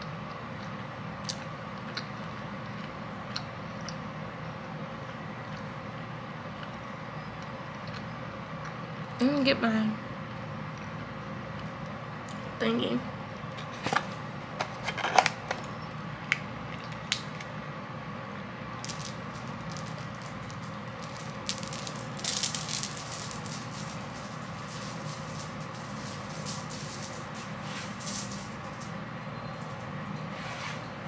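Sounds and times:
steady low hum: 0.0s - 30.2s
crackling rustles: 18.8s - 29.9s.

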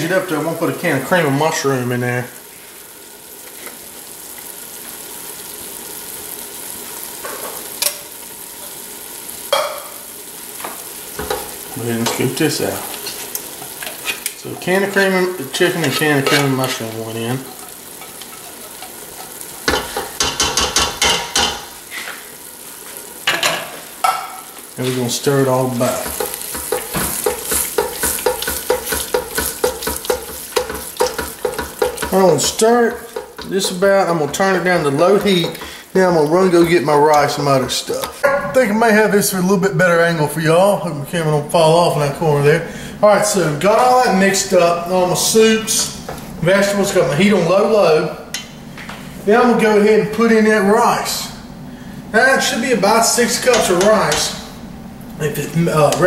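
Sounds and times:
food sizzling in a pot: 0.0s - 40.8s, 41.5s - 56.0s
spatula scraping a pot: 15.6s - 16.8s, 17.4s - 20.2s.

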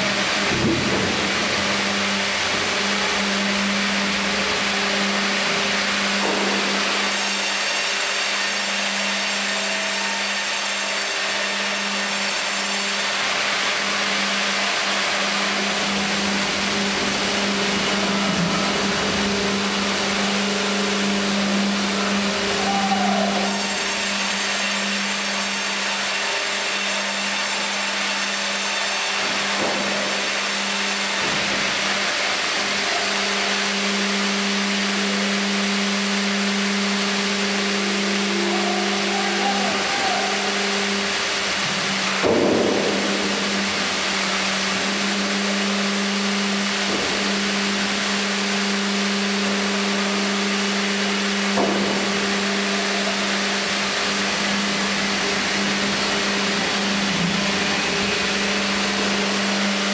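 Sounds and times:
low machine hum: 0.0s - 7.3s, 13.2s - 24.4s, 31.4s - 59.9s
band saw cutting log: 0.0s - 59.9s.

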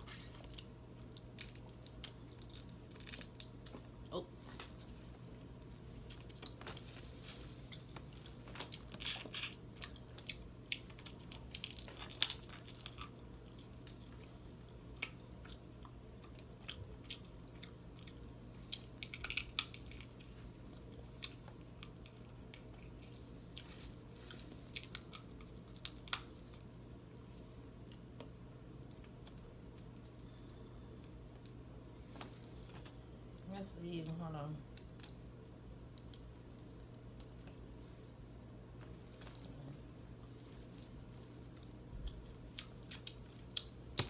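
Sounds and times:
crab legs cracking: 0.6s - 3.8s, 8.5s - 14.0s, 18.7s - 20.3s.

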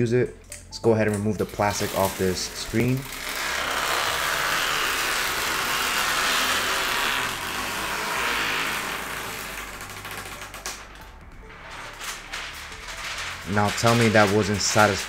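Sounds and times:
plastic film peeling: 1.1s - 15.0s.

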